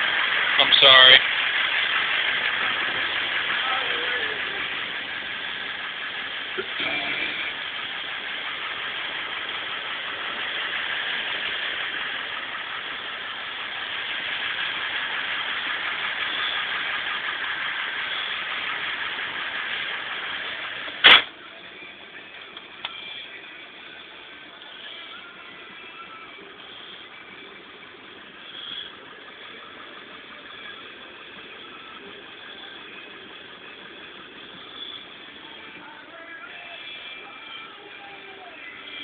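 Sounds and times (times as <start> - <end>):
diesel engine running: 0.0 - 39.0
loud thump: 21.0 - 21.3.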